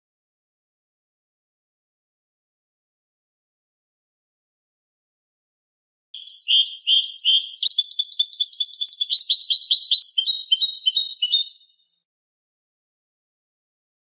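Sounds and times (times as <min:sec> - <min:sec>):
goldfinch singing: 0:06.2 - 0:12.0.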